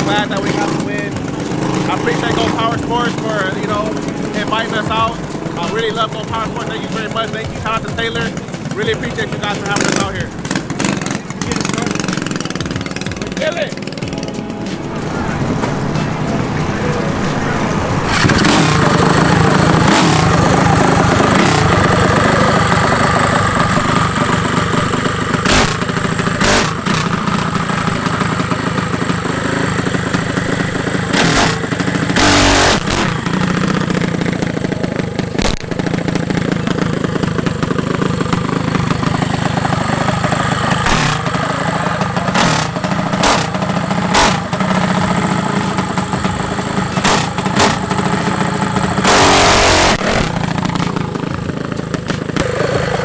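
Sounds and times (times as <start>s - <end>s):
small engine running: 0.0s - 53.0s
short sharp cracks: 35.4s - 36.2s, 40.8s - 41.4s.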